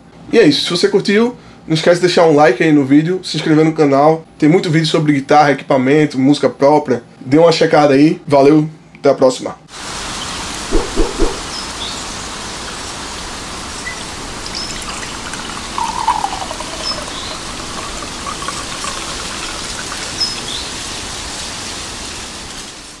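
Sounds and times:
outdoor background hiss: 0:00.0 - 0:23.0
liquid pouring into mug: 0:13.7 - 0:21.0.

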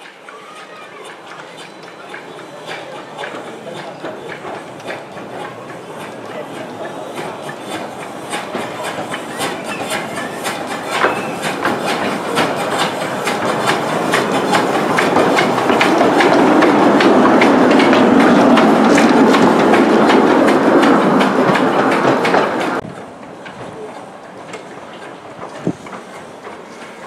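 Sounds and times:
steam locomotive clicks and puffs: 0:00.0 - 0:27.0
steam rushing: 0:00.0 - 0:27.0.

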